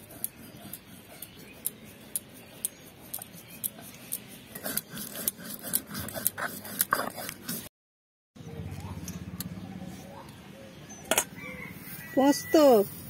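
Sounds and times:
stone grinding on stone slab: 0.7 - 7.7.

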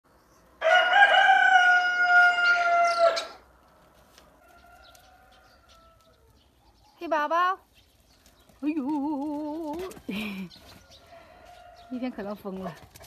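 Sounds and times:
rooster crowing: 0.6 - 3.4, 4.4 - 6.4, 10.8 - 12.0.

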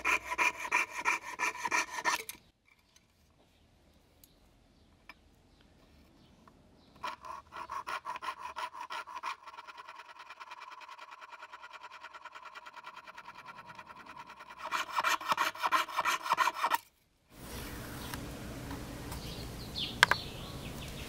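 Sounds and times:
saw rasping through sheet metal: 0.0 - 2.2, 7.0 - 16.8.

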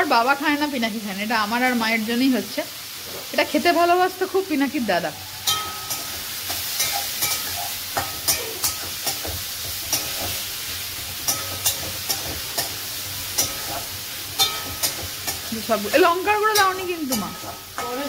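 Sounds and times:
vegetables sizzling in oil: 0.0 - 18.0
metal spatula scraping a wok: 4.3 - 18.0.

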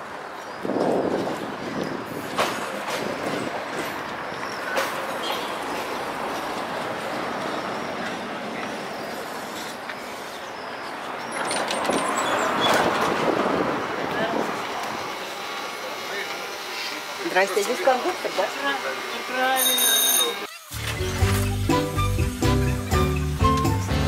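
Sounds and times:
tram wheels clicking: 0.0 - 15.6
tram rumbling along track: 0.0 - 16.6.

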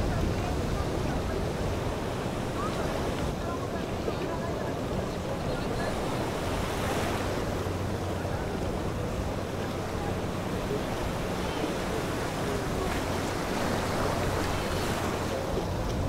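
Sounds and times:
steady wind: 0.0 - 16.0
surging water: 0.0 - 16.0.

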